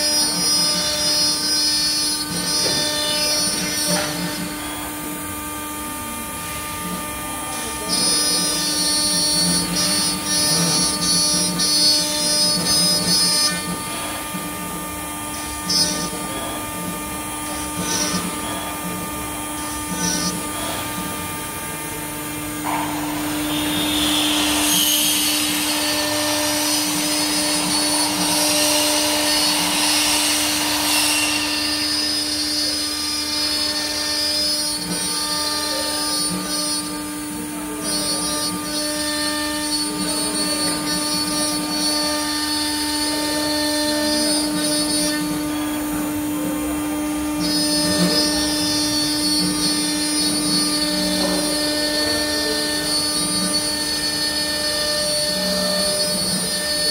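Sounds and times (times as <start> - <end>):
bit cutting wood: 0.0 - 56.9
router spindle whine: 0.0 - 56.9.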